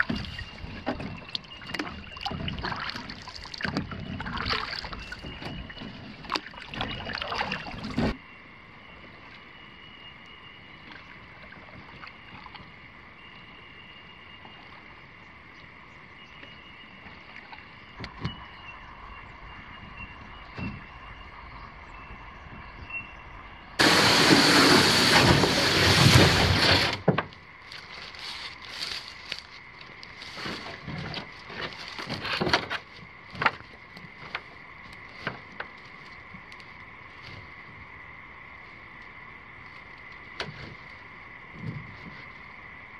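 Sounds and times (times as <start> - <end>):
insects droning: 0.0 - 42.9
loud burst of noise: 23.8 - 27.3
twigs snapping and rustling: 27.3 - 37.4.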